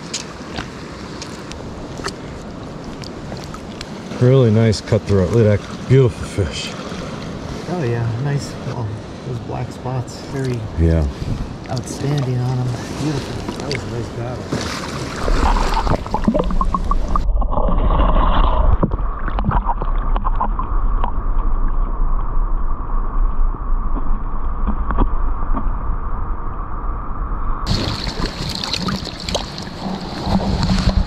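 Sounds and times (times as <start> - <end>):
water sloshing and gurgling: 0.0 - 26.7, 27.6 - 31.0
muffled underwater rumble: 15.2 - 31.0.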